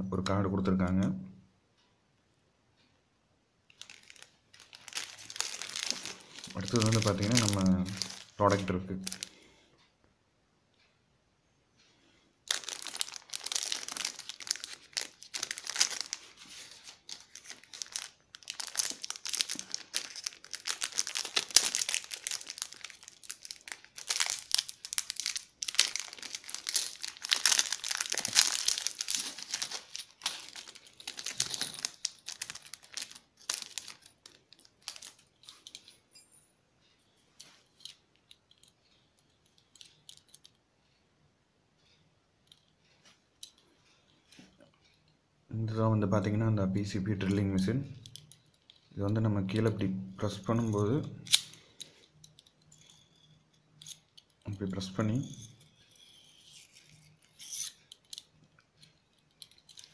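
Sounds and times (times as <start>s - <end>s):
plastic packaging crinkling: 3.7s - 9.4s, 12.5s - 35.4s.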